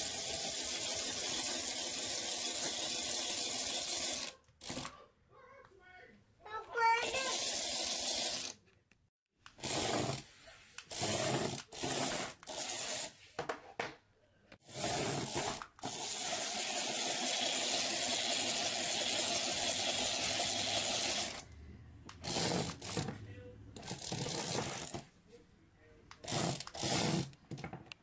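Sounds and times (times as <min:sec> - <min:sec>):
small geared motor whirring: 0:22.2 - 0:23.1.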